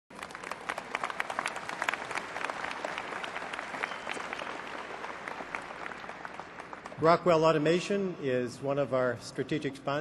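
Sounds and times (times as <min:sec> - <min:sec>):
audience applauding: 0:00.1 - 0:07.1.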